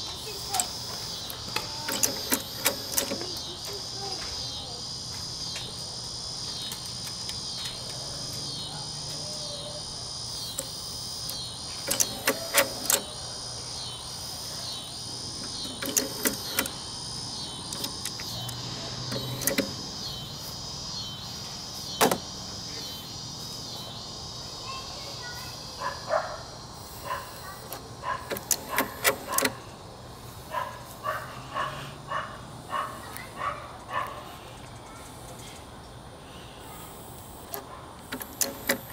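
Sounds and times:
mechanical clicks and clunks: 0.2 - 4.4, 10.3 - 13.2, 15.3 - 20.1, 22.0 - 22.3, 27.7 - 29.7, 37.5 - 38.9.

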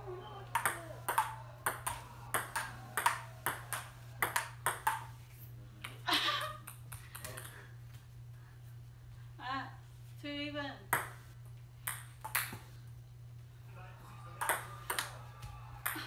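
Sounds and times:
table tennis ball hits: 0.5 - 5.2, 6.6 - 7.6, 10.9 - 11.2, 11.8 - 12.7, 14.4 - 15.2.

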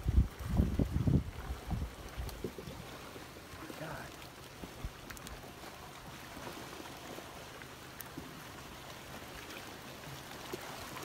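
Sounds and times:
muddy water churning and rushing: 0.0 - 11.0
faint clicks: 4.1 - 5.4.

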